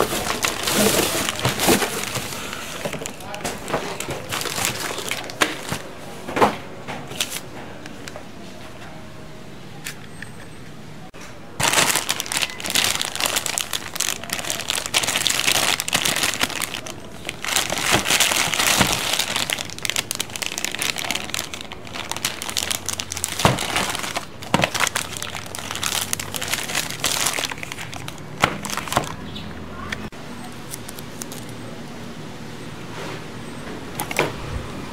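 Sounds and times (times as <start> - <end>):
plastic bags crinkling: 0.0 - 5.9, 11.6 - 29.3, 30.7 - 31.6.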